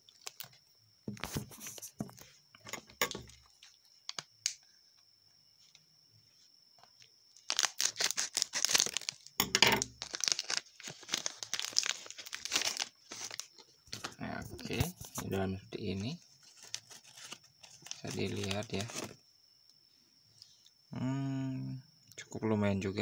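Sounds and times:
plastic wrapper tearing and crinkling: 0.1s - 0.5s, 7.4s - 15.2s, 16.4s - 19.2s.

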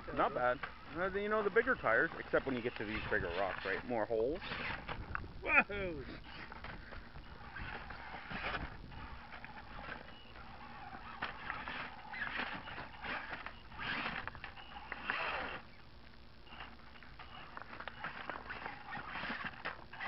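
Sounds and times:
electric motor whine: 0.0s - 20.0s
toy truck clattering on rocks: 6.3s - 15.6s, 16.6s - 20.0s.

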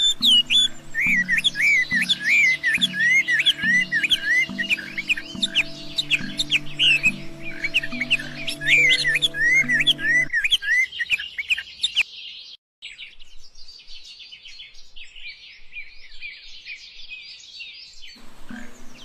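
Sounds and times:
background music low notes: 0.0s - 10.4s
small birds chirping: 0.0s - 19.0s.

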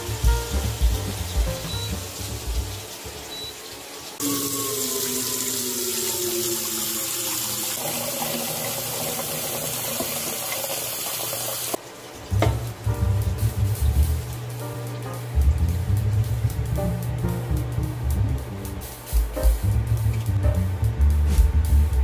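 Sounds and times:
soft background music: 0.0s - 3.5s, 12.3s - 22.0s
water pouring into metal pot: 3.8s - 11.8s.

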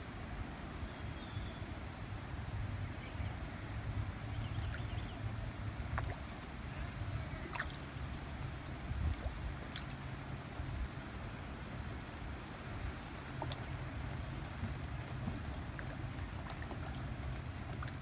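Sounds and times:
rain on water: 0.0s - 18.0s
small water drips: 4.3s - 11.2s, 12.4s - 18.0s.

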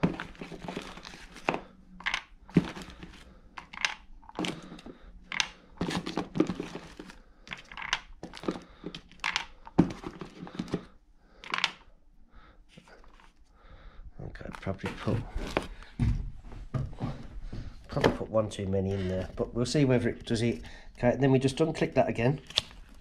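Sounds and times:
handling rustle: 0.0s - 11.7s.

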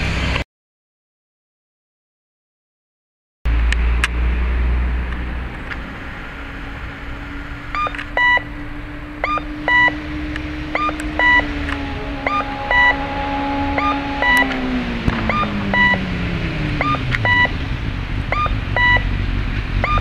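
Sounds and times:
electronic two-note cuckoo call: 10.7s - 14.6s.

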